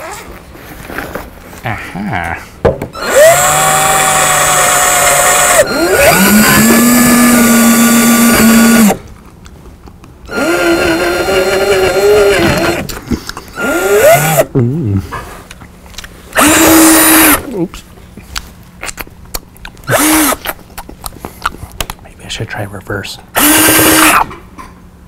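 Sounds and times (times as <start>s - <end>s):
cordless drill motor whining: 3.0s - 9.0s, 10.3s - 12.9s, 13.6s - 14.5s, 16.4s - 17.5s, 19.9s - 20.4s, 23.4s - 24.2s.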